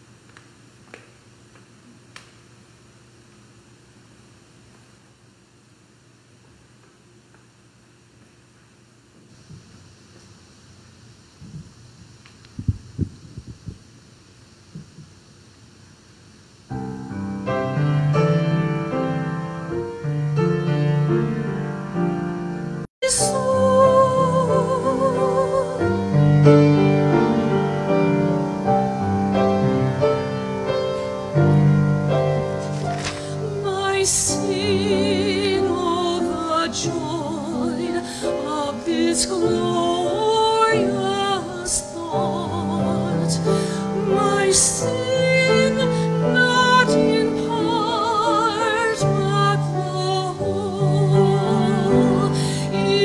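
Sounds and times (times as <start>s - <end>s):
grand piano accompaniment: 16.7s - 53.0s
woman singing with vibrato: 23.0s - 27.6s, 33.2s - 53.0s.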